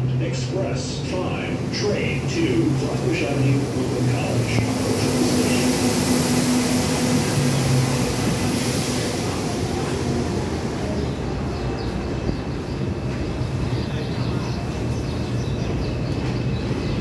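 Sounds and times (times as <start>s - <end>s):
subway train humming: 0.0s - 17.0s
high hiss: 2.0s - 10.9s.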